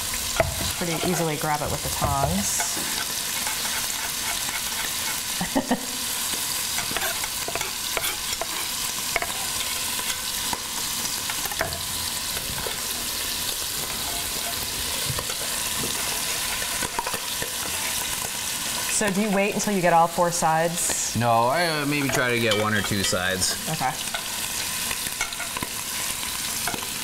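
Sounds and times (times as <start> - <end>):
cheese sizzling in a pot: 0.0 - 27.0
knife mincing on cutting board: 2.8 - 5.4.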